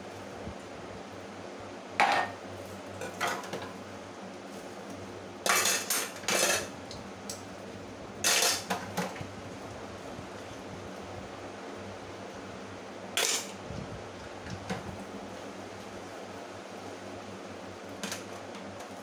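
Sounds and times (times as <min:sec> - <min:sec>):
dishes clattering in metal sink: 0:02.0 - 0:02.4, 0:03.0 - 0:03.7, 0:05.4 - 0:06.7, 0:08.2 - 0:09.2.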